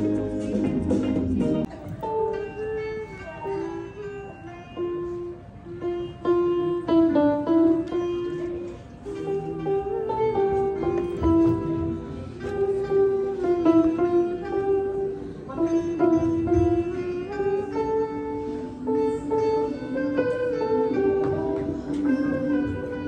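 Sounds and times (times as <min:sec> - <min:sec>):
electronic keyboard melody: 0:00.0 - 0:23.0.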